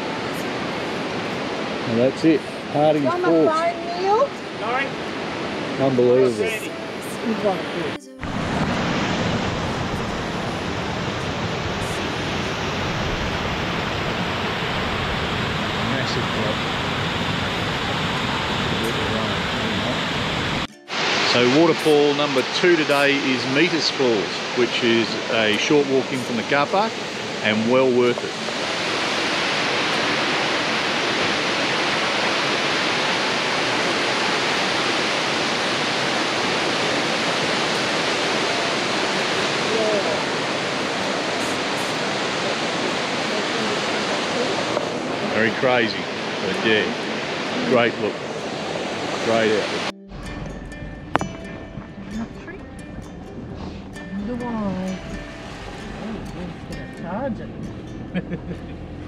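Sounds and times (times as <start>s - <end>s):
water rushing over rocks: 0.0s - 57.2s.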